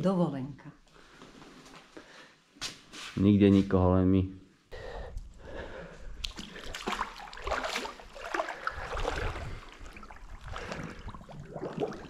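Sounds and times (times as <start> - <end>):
water splashing and sloshing: 5.3 - 12.0.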